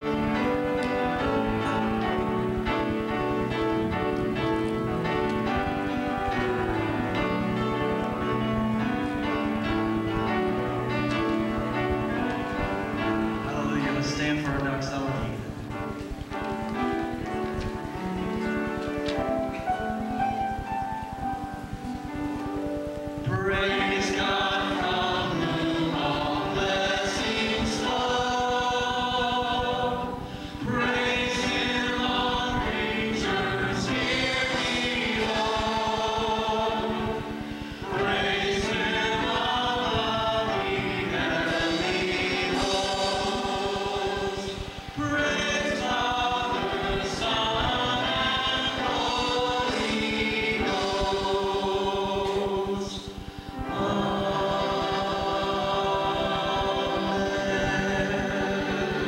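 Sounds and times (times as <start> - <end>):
congregation singing with band: 0.0 - 20.1, 21.1 - 59.0.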